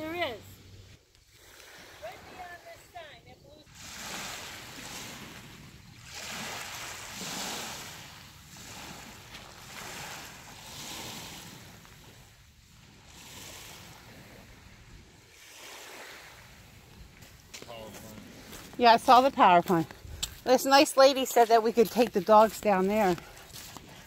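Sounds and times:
waves lapping on pebbly shore: 1.2 - 24.0.

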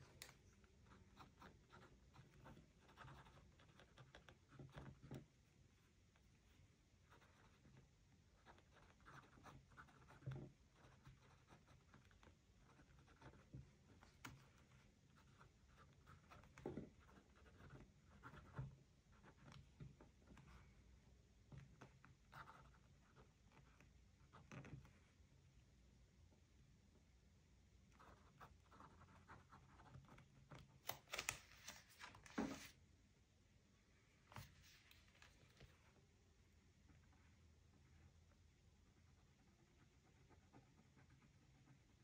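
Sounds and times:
scratching and rustling on paper: 0.0 - 20.8, 28.0 - 32.8, 34.2 - 36.0.

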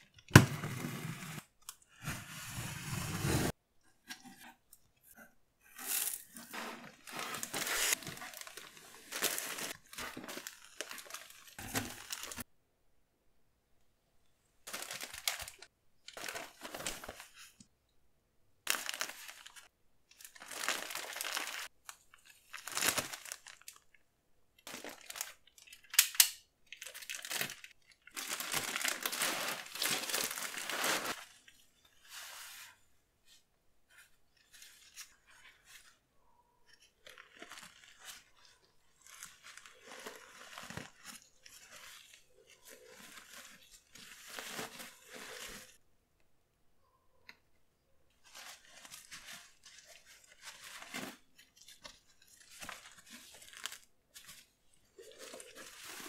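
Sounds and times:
plastic wrapping crinkling and tearing: 5.8 - 12.5, 14.7 - 17.2, 18.7 - 24.0, 24.6 - 31.6, 36.7 - 45.8, 48.2 - 56.0
paper rustling: 6.0 - 12.4, 26.8 - 32.7, 48.2 - 56.0.

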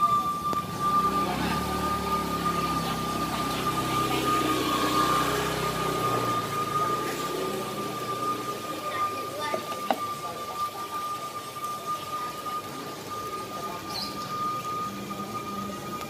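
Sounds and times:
motorcycle engine running: 0.0 - 10.1
high-pitched steam whistle: 0.0 - 16.0.

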